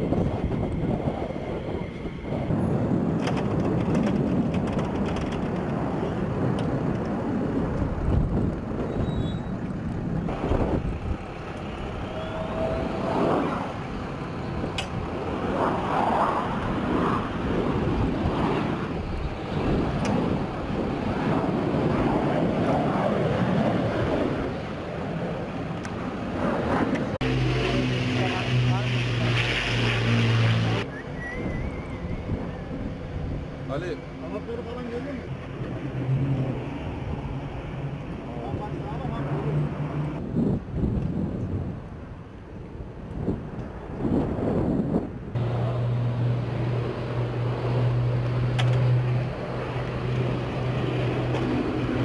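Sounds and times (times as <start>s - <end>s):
wind rumbling on microphone: 0.0s - 52.0s
steady high whine: 24.8s - 40.2s, 45.4s - 52.0s.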